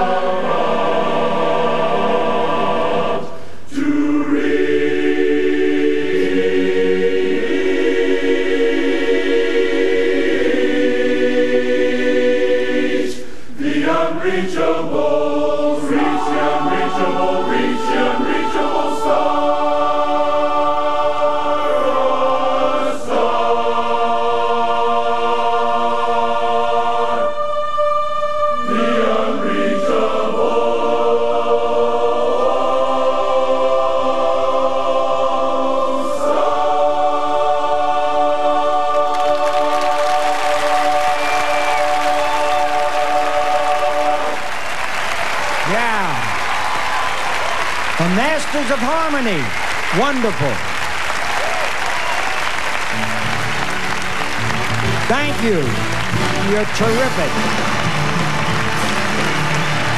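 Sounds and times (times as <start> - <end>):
men's chorus singing a cappella: 0.0 - 46.5.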